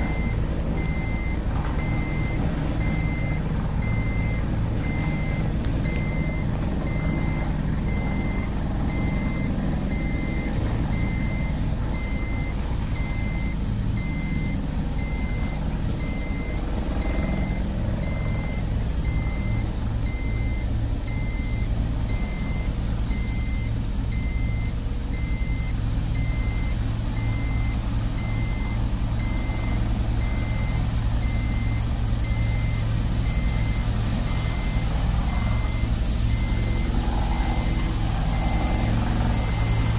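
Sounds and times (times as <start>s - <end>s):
electronic beeps: 0.0s - 39.9s
helicopter turbine and rotors: 0.0s - 39.9s.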